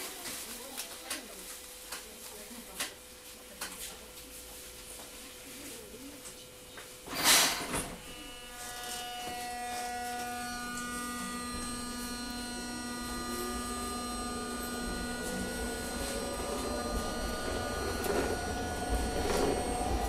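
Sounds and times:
tram controller multi-tone whine: 8.0s - 20.0s
low motor tone rising: 9.0s - 20.0s.

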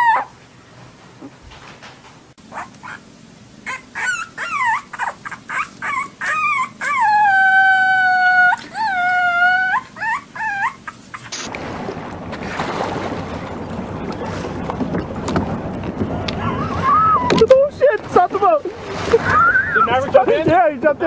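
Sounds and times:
puppy howling and yelping: 0.0s - 0.4s, 2.5s - 3.0s, 3.6s - 11.3s, 16.4s - 17.5s.

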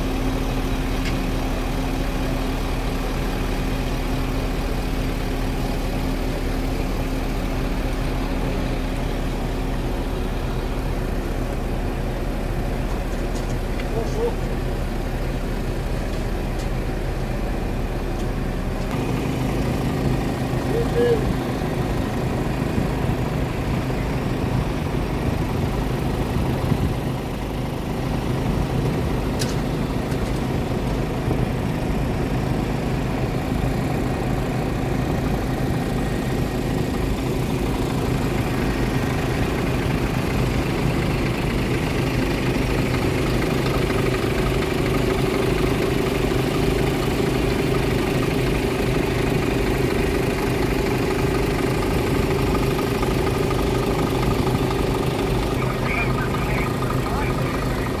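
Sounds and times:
diesel engines idling: 0.0s - 58.0s
higher hum: 49.1s - 58.0s.

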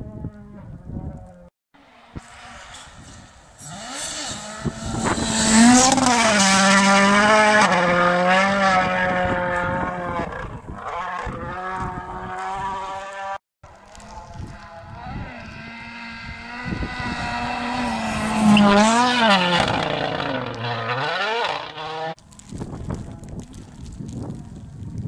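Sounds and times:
rally car engine passing: 1.8s - 13.4s, 14.0s - 22.2s.

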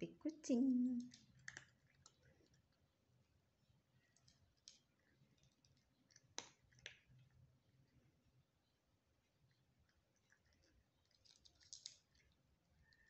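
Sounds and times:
cat crunching dry kibble: 1.0s - 3.0s, 4.0s - 8.1s, 9.4s - 12.6s.

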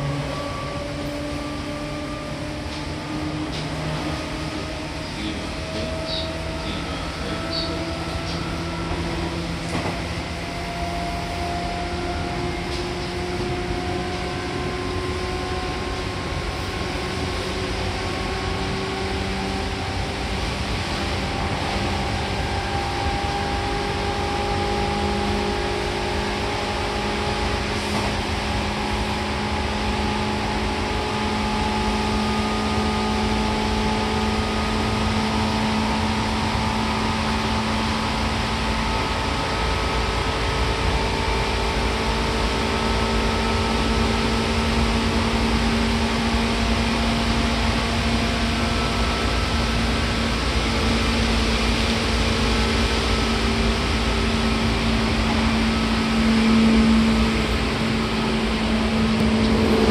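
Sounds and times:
train motor whine: 0.0s - 59.9s
train wheels rumbling on rail: 0.0s - 59.9s.

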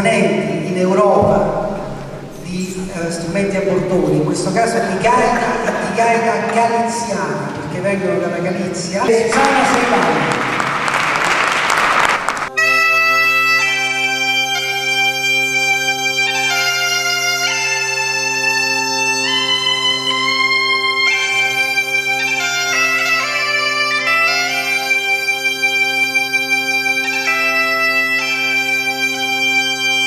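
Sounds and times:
bagpipe drone: 0.0s - 30.0s
bagpipe chanter melody: 1.2s - 7.6s, 8.2s - 30.0s.

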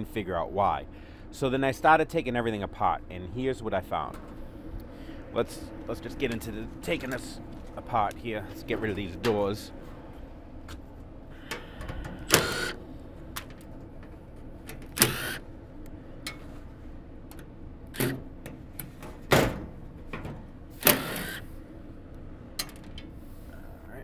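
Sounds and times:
cordless driver spinning screws: 12.3s - 12.8s, 15.0s - 15.4s, 20.8s - 21.4s
small metal clicks and rattles: 22.6s - 23.1s.

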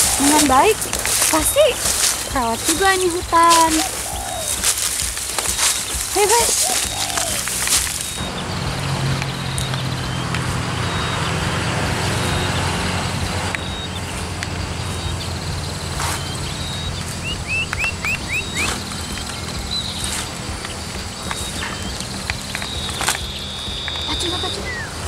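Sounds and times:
bird chirping: 0.0s - 25.0s
footsteps through undergrowth: 0.0s - 25.0s.

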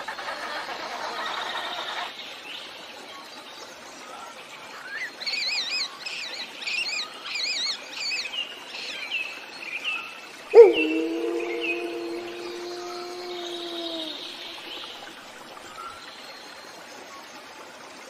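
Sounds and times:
bird warbling: 10.6s - 15.1s
wolf howling: 10.6s - 15.2s.

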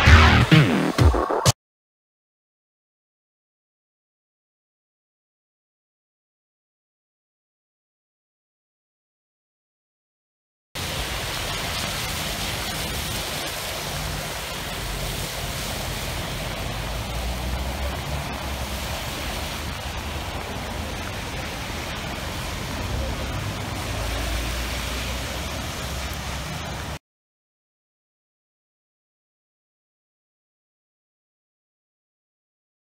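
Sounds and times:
floodwater rushing: 10.8s - 27.0s
heavy rain pouring: 10.8s - 27.0s.

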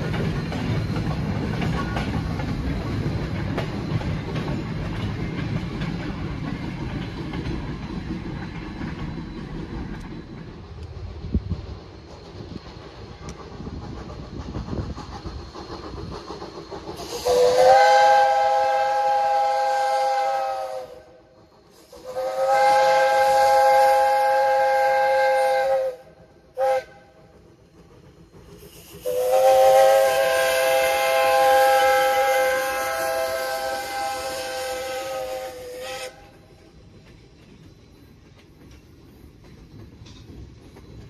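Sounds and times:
steam whistle blasts: 17.0s - 27.2s, 28.7s - 36.4s.

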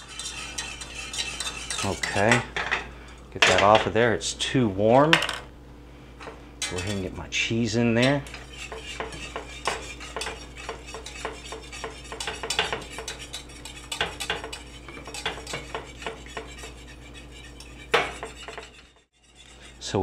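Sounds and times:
whisk clinking against a pan: 0.0s - 2.8s, 6.6s - 7.2s, 7.9s - 20.0s.

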